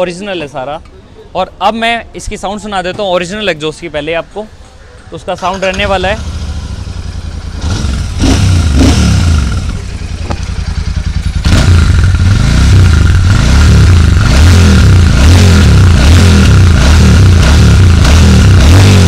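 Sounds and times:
motorcycle engine revving: 5.4s - 19.0s.

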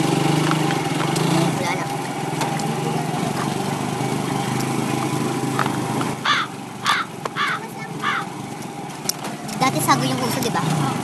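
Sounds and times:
motor tricycle engine humming: 0.0s - 11.0s
harsh caw-like calls: 6.2s - 8.4s.

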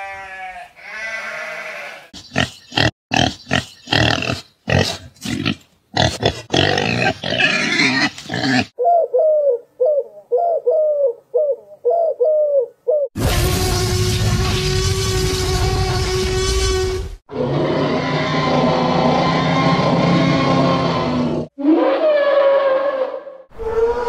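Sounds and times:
pig grunting: 2.1s - 8.8s
dove cooing: 8.8s - 13.1s.

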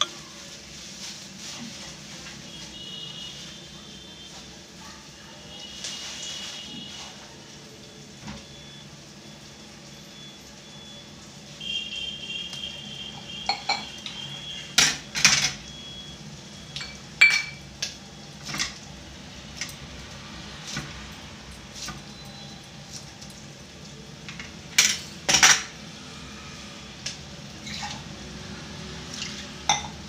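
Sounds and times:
metal pots and utensils clinking: 0.0s - 0.4s, 13.3s - 15.7s, 16.7s - 17.8s, 24.2s - 25.8s, 27.6s - 28.1s, 29.2s - 30.0s.

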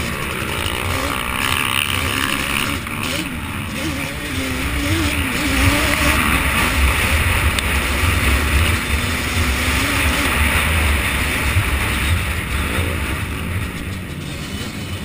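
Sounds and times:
atv engine running hard: 0.0s - 15.0s.

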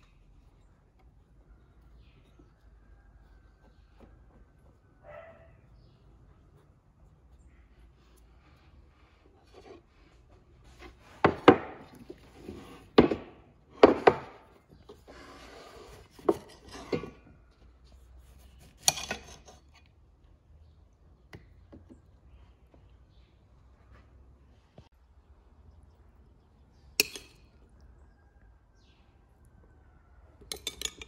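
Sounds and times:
kitchenware knocking on wooden table: 13.0s - 14.5s.

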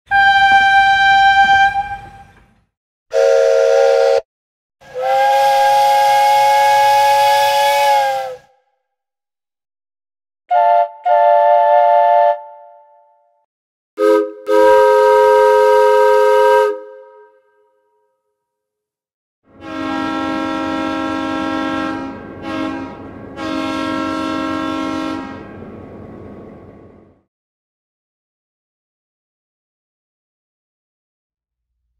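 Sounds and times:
single-note steam whistle: 0.1s - 2.5s, 3.1s - 4.2s, 4.8s - 8.6s, 10.5s - 13.2s, 14.0s - 17.7s, 19.6s - 25.6s.

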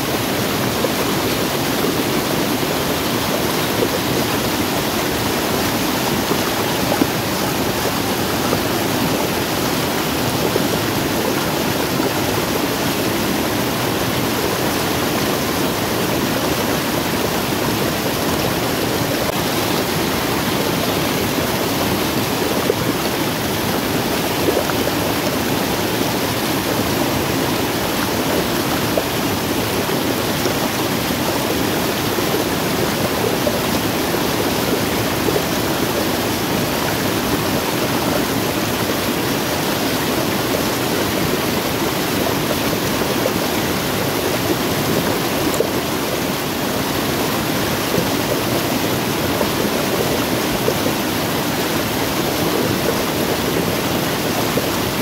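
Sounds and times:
water rushing over waterfall: 0.0s - 55.0s.

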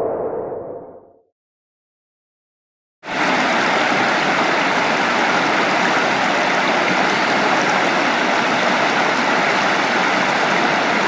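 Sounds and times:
creek rushing over rocks: 3.1s - 11.0s.

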